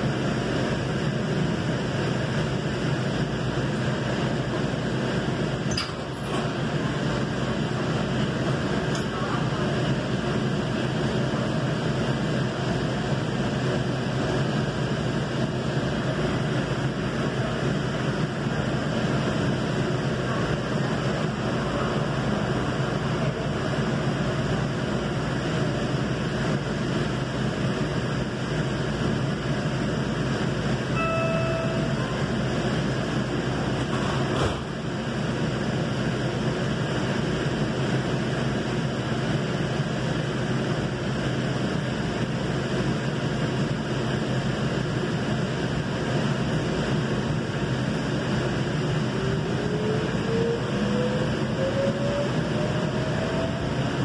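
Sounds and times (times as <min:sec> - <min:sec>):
train wheels rolling on track: 0:00.0 - 0:54.0
brief tone: 0:30.9 - 0:32.4
rising whine: 0:31.0 - 0:33.7, 0:48.9 - 0:54.0.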